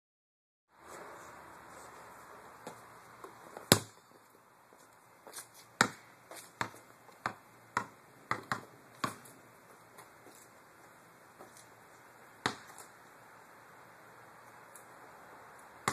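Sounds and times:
soccer ball thuds: 0:02.7 - 0:04.1, 0:05.8 - 0:06.0, 0:06.6 - 0:09.2, 0:12.4 - 0:12.8.

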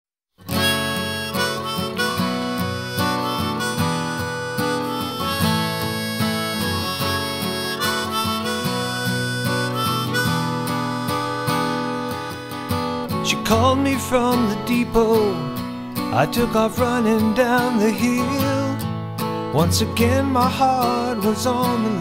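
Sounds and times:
harmonica melody: 0:00.4 - 0:18.8, 0:19.4 - 0:22.0
strummed guitar: 0:00.4 - 0:22.0.

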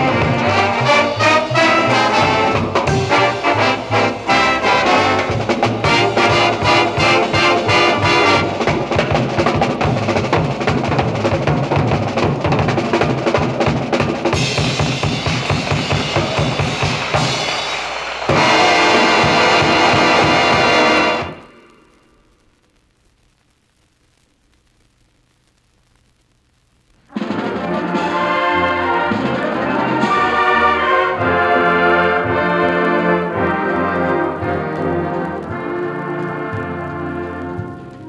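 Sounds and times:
low drum beats: 0:00.0 - 0:21.5
brass band playing: 0:00.0 - 0:21.7, 0:27.1 - 0:38.0.

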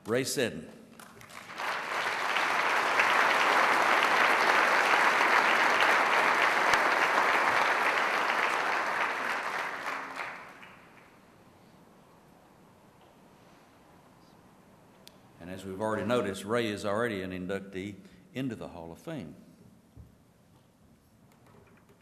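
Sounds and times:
audience applauding: 0:01.0 - 0:11.2.

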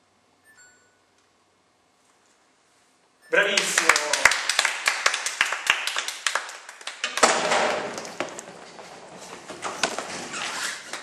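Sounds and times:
hand clapping: 0:03.4 - 0:08.5
knocks and shuffling: 0:07.2 - 0:11.0.

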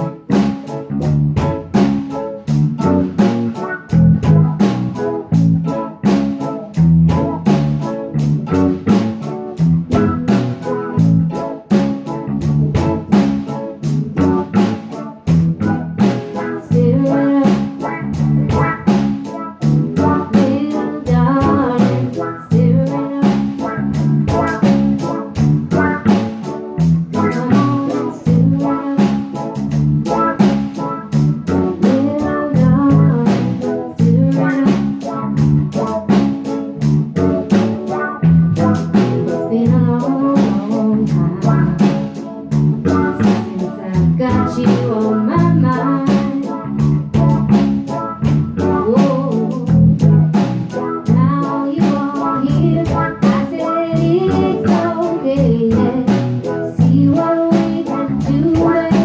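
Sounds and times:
bass: 0:00.0 - 0:59.0
drum kit beat: 0:00.0 - 0:59.0
guitar: 0:00.0 - 0:59.0
person singing: 0:16.0 - 0:26.1, 0:27.1 - 0:35.9, 0:38.6 - 0:46.8, 0:48.6 - 0:50.1, 0:50.7 - 0:59.0.

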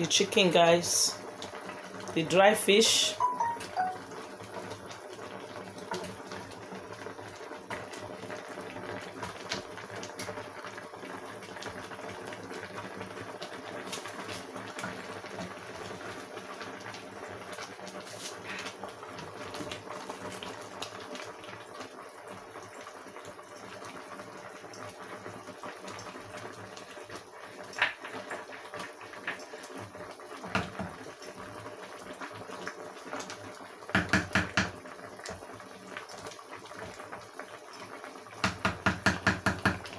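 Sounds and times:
pot boiling on stovetop: 0:00.0 - 0:39.9
wooden spoon knocking on pot: 0:33.9 - 0:34.8, 0:38.4 - 0:39.9.

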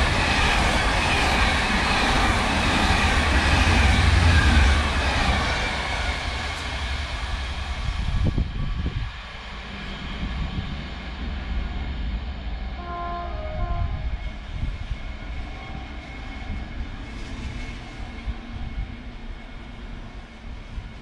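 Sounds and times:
passenger train rumbling: 0:00.0 - 0:21.0
train horn: 0:12.8 - 0:14.2.

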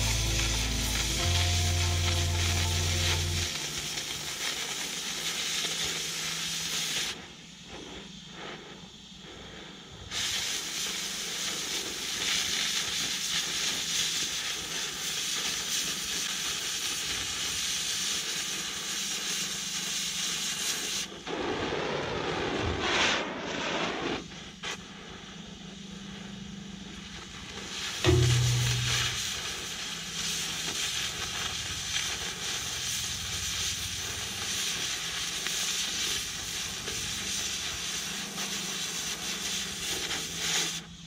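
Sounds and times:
low hum: 0:00.0 - 0:04.4, 0:21.3 - 0:34.4
cutting torch hissing: 0:00.0 - 0:41.0.

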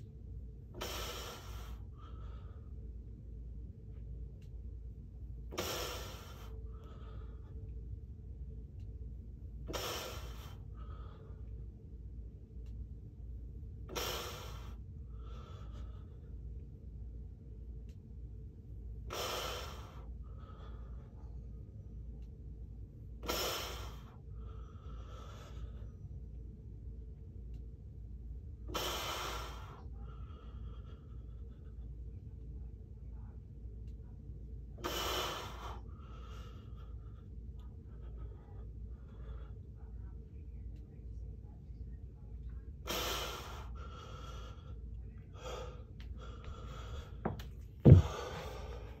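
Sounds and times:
man breathing hard: 0:00.7 - 0:03.0, 0:05.5 - 0:07.7, 0:09.7 - 0:11.6, 0:13.9 - 0:16.4, 0:19.1 - 0:21.3, 0:23.2 - 0:26.0, 0:28.7 - 0:32.0, 0:34.8 - 0:40.0, 0:42.8 - 0:49.0
deep thump: 0:47.3 - 0:48.5.

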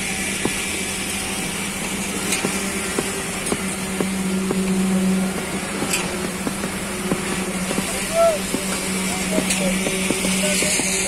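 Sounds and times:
engine humming: 0:00.0 - 0:11.0
hammer knocking on steel: 0:05.3 - 0:11.0.

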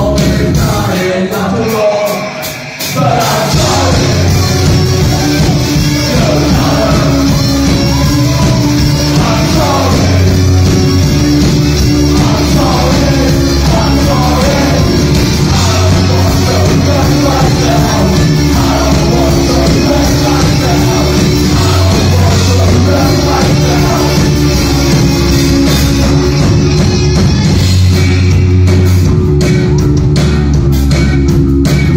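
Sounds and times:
man singing: 0:00.0 - 0:10.8, 0:11.7 - 0:25.4
live rock band playing: 0:00.0 - 0:31.9.

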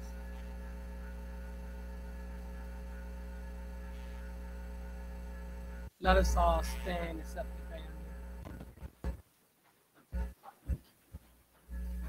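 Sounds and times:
low electrical mains hum: 0:00.0 - 0:12.0.

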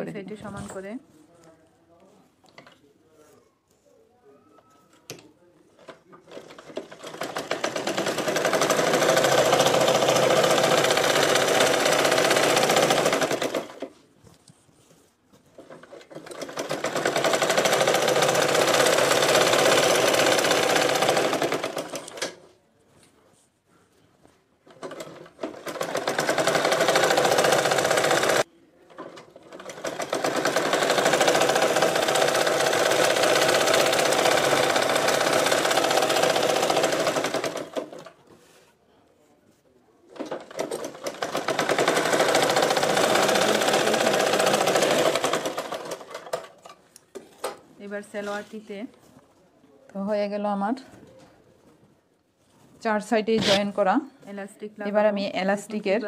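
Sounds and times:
sewing machine stitching: 0:05.8 - 0:14.0, 0:15.5 - 0:22.5, 0:24.6 - 0:38.2, 0:40.1 - 0:46.8, 0:53.4 - 0:53.6.

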